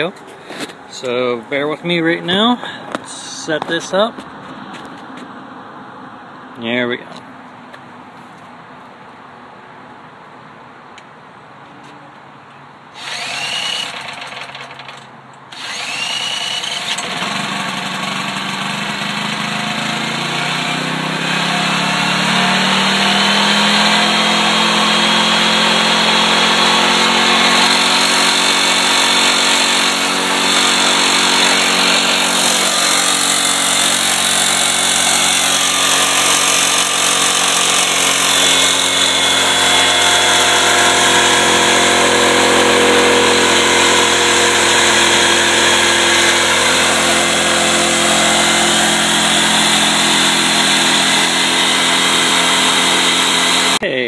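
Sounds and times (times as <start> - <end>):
cordless drill whining: 13.0 - 20.1, 26.8 - 41.9
small generator engine running: 13.0 - 53.8.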